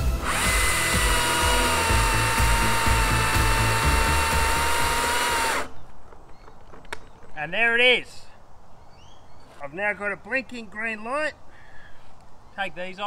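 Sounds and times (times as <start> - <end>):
electric chainsaw cutting log: 0.0 - 5.8.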